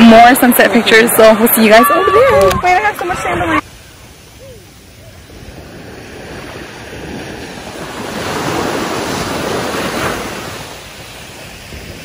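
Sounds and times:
waves breaking on beach: 0:00.0 - 0:12.0
wind buffeting microphone: 0:00.7 - 0:12.0.

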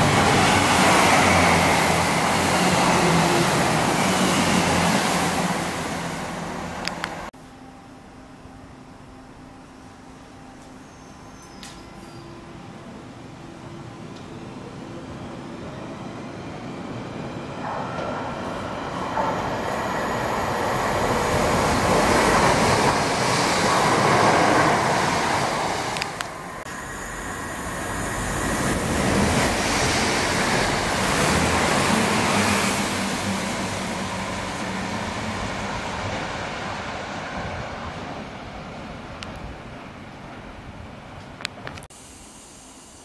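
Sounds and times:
train wheels on rails: 0:14.0 - 0:41.9.

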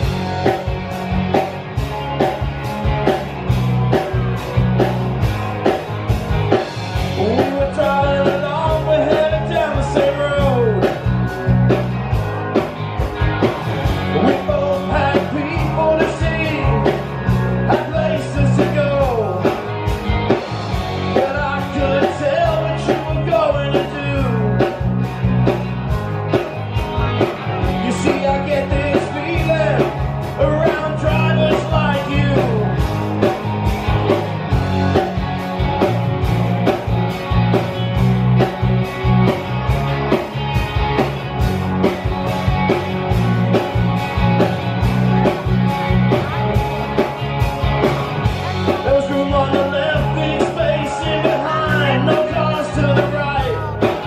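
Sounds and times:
bass guitar: 0:00.0 - 0:54.0
drum kit beat: 0:00.0 - 0:54.0
electric guitars: 0:00.0 - 0:54.0
man singing lead vocal: 0:07.1 - 0:11.0, 0:14.0 - 0:19.6, 0:21.0 - 0:24.8, 0:27.7 - 0:32.8, 0:48.7 - 0:54.0.

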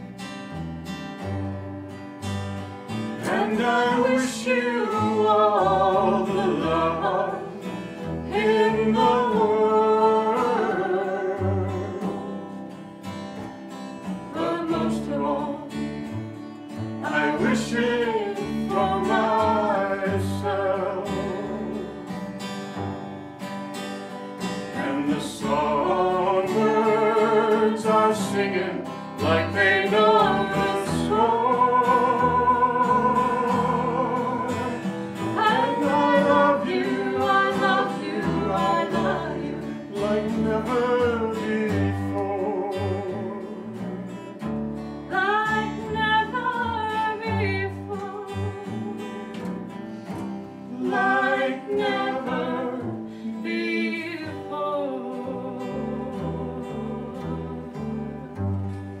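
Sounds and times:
upright bass: 0:00.0 - 0:23.1, 0:24.6 - 0:59.0
fingerpicked acoustic guitar: 0:00.0 - 0:59.0
woman singing a slow ballad: 0:03.3 - 0:07.6, 0:14.2 - 0:15.8, 0:17.0 - 0:21.6, 0:29.2 - 0:34.8, 0:35.4 - 0:42.0, 0:45.1 - 0:49.4, 0:50.7 - 0:58.6.

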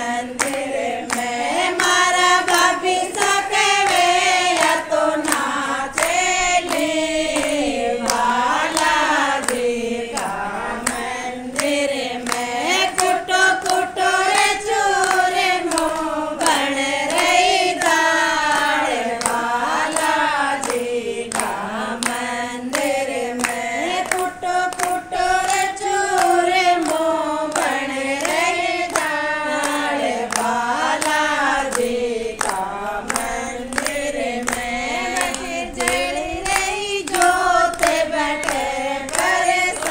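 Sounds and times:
hand claps: 0:00.0 - 0:39.9
women singing devotional song: 0:00.0 - 0:39.9.

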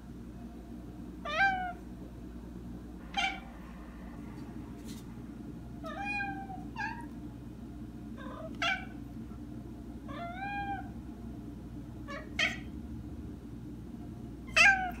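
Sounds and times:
cat meowing: 0:03.1 - 0:03.5, 0:14.5 - 0:15.0.

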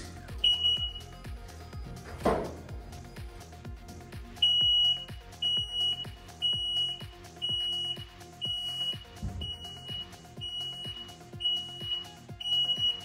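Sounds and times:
background music with steady beat: 0:00.0 - 0:13.0
high warning beeps: 0:00.4 - 0:01.2, 0:04.4 - 0:13.0.

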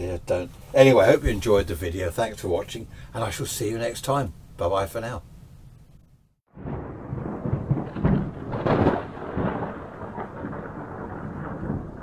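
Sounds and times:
thunder rumbling: 0:06.5 - 0:12.0.

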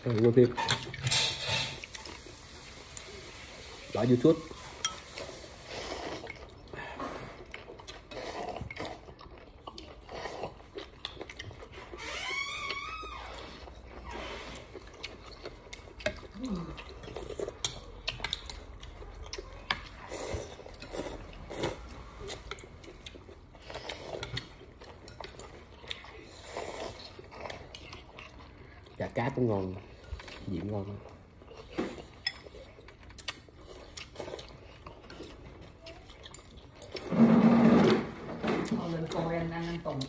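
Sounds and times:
chewing: 0:04.5 - 0:37.5.

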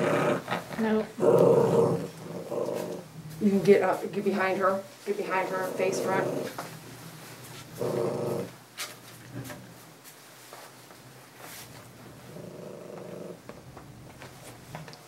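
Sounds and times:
dog growling: 0:00.0 - 0:03.8, 0:05.5 - 0:06.9, 0:07.7 - 0:08.6, 0:12.1 - 0:13.8.

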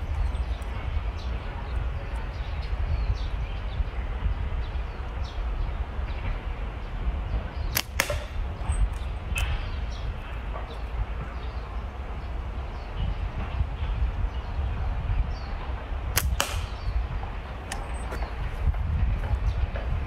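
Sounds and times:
wind rumble on microphone: 0:00.0 - 0:20.0
slingshot snapping cracks: 0:07.7 - 0:09.5, 0:16.2 - 0:16.8.

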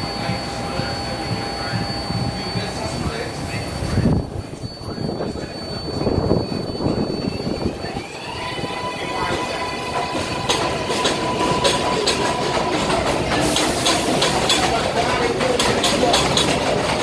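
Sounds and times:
subway traction motor whine: 0:00.0 - 0:17.0
wheels clicking over rail joints: 0:09.3 - 0:17.0.

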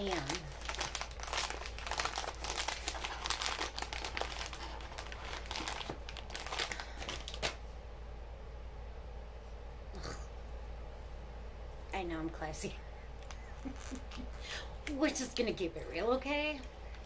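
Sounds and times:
packaging crinkling: 0:00.0 - 0:07.6.

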